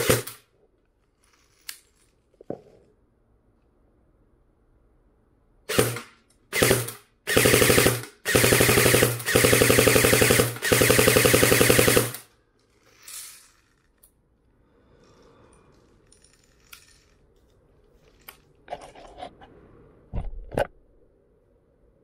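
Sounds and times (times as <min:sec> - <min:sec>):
airsoft gun full-auto burst: 0:00.0 - 0:00.4, 0:05.7 - 0:12.3.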